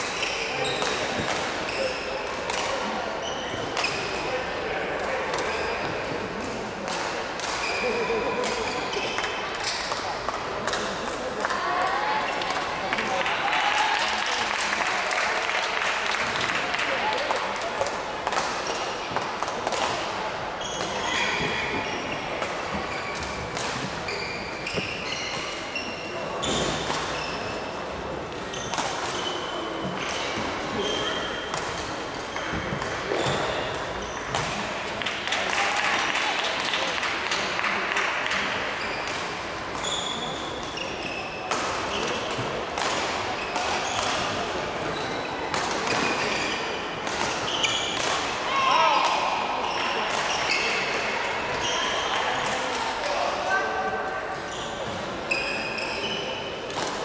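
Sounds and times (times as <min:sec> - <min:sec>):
sports shoes squeaking on floor: 0:00.2 - 0:01.0, 0:03.2 - 0:04.1, 0:20.6 - 0:27.6, 0:28.5 - 0:31.6, 0:32.3 - 0:34.4, 0:39.8 - 0:42.3, 0:44.8 - 0:48.0, 0:49.7 - 0:50.9, 0:54.5 - 0:56.6
rackets smacking shuttlecock: 0:41.5 - 0:44.4, 0:47.0 - 0:48.4.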